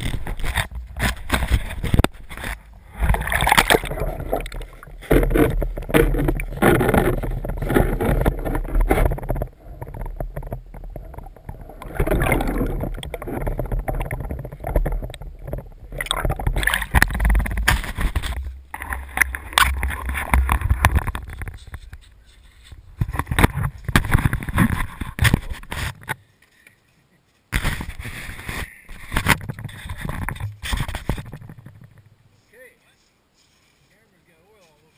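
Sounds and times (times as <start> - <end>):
muffled water sloshing and gurgling: 0.0 - 22.0, 22.8 - 26.1.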